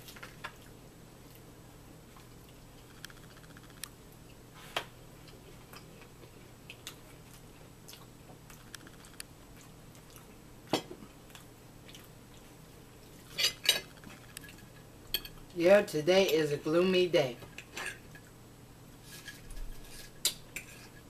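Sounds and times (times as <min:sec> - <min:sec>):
chewing: 0:02.1 - 0:04.4, 0:05.2 - 0:14.8.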